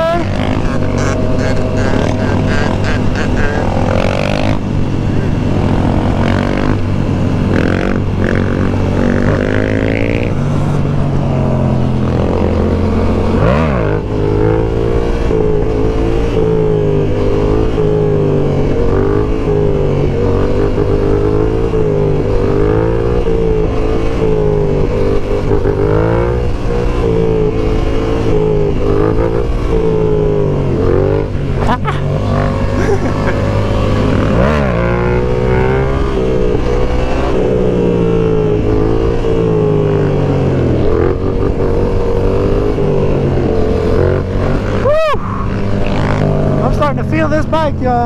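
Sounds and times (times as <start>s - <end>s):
motorcycle engine running: 0.0s - 48.0s
wind and road noise: 0.0s - 48.0s.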